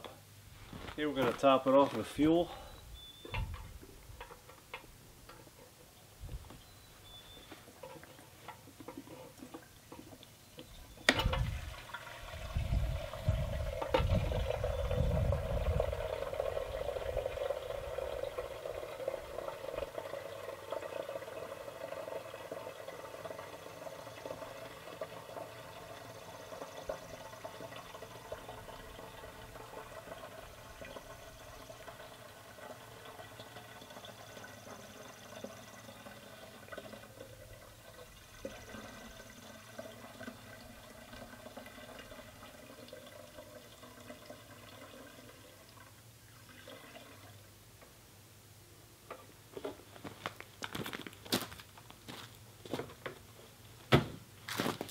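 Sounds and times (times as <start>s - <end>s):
gasoline pouring into tank: 11.1s - 47.4s.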